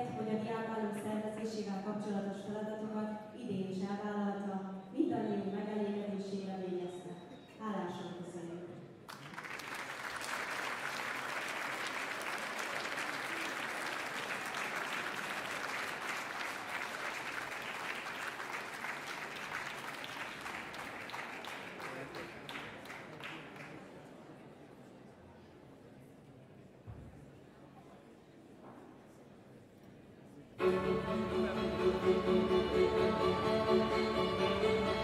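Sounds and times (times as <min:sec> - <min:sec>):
audience applauding: 0:09.1 - 0:24.0.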